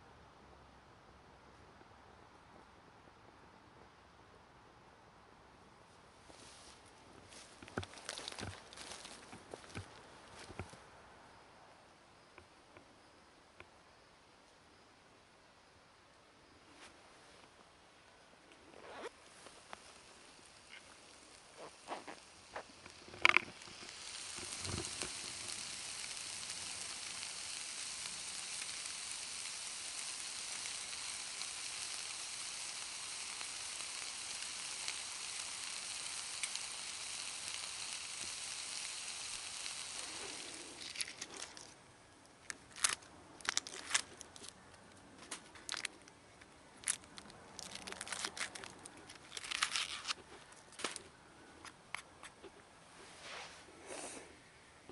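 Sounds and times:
small clicks and crackles: 0:07.3 - 0:10.8, 0:18.5 - 0:52.6
steak sizzling in a frying pan: 0:19.5 - 0:41.2.

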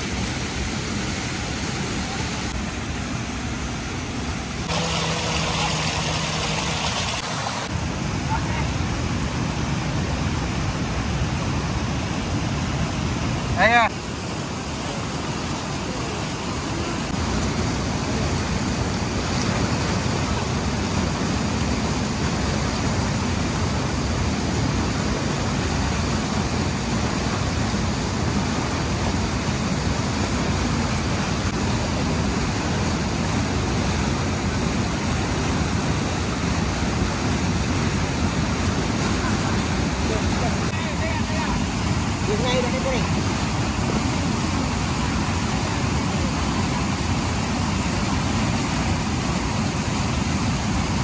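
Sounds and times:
waterfall rushing water: 0:00.0 - 0:51.0.

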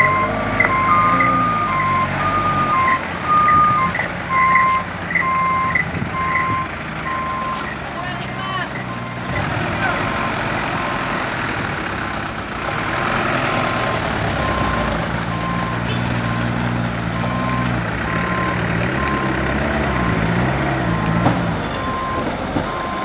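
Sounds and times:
electronic truck beeper: 0:00.0 - 0:07.8, 0:08.6 - 0:11.1, 0:14.4 - 0:21.2, 0:21.8 - 0:23.0
diesel truck engines running: 0:00.0 - 0:23.0
truck pulling past: 0:00.0 - 0:23.0.

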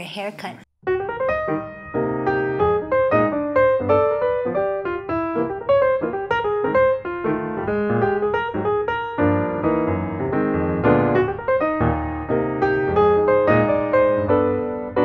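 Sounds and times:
piano music: 0:00.8 - 0:15.0.

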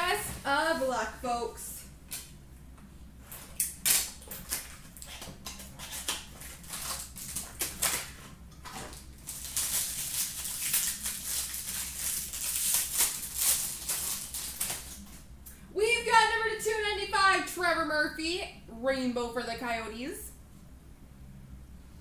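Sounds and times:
wrapper crinkling and tearing: 0:03.6 - 0:15.2.

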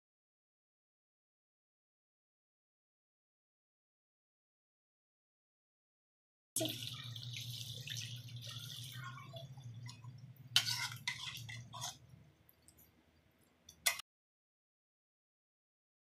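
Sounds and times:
curry bubbling and sizzling: 0:06.6 - 0:14.0
spatula scraping a pan: 0:09.9 - 0:12.2.

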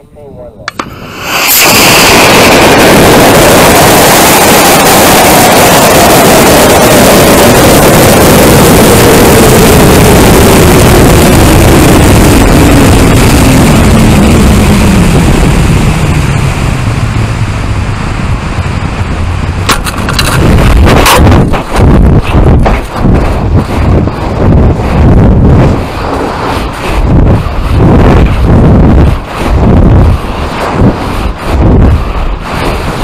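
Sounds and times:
rush of air with falling whistle: 0:00.8 - 0:08.8.

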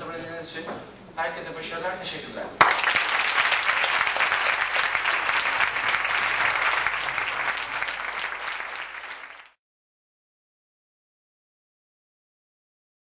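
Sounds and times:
audience applauding: 0:02.6 - 0:09.6.

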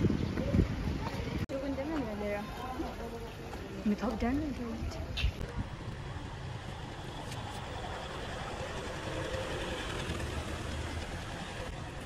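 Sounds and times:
truck engine running: 0:05.5 - 0:12.0.

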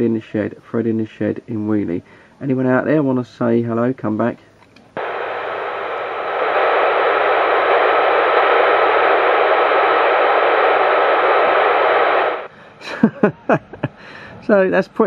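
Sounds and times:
radio static hiss: 0:05.0 - 0:12.5.

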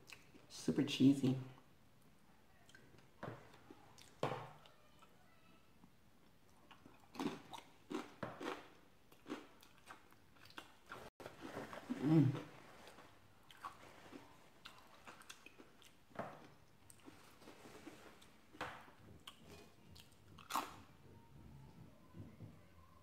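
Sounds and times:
wet chewing mouth sounds: 0:03.6 - 0:04.2, 0:06.5 - 0:18.4, 0:19.0 - 0:20.9.

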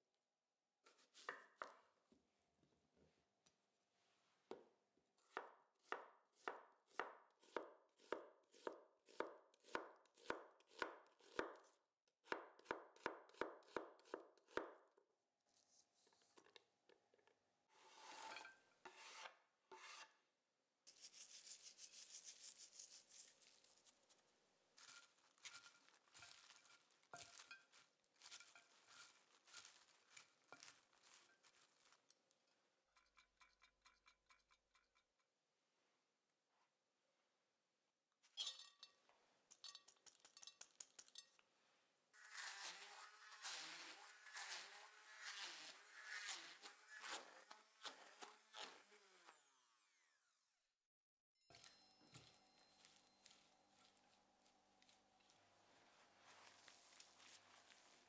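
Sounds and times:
slices scraped off board: 0:17.8 - 0:20.2, 0:42.2 - 0:48.8
rustling of mixed vegetables: 0:21.0 - 0:32.6, 0:52.7 - 0:58.0.

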